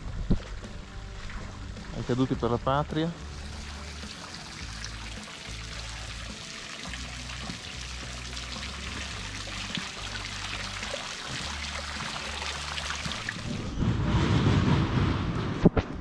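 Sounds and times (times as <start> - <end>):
fountain water splashing: 0.0 - 13.6
faint music: 0.0 - 16.0
low rumble: 12.8 - 16.0.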